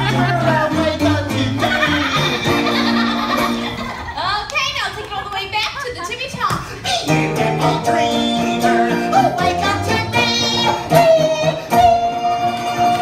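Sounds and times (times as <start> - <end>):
live stage band music: 0.0 - 3.9, 7.0 - 13.0
person singing long notes: 7.0 - 13.0.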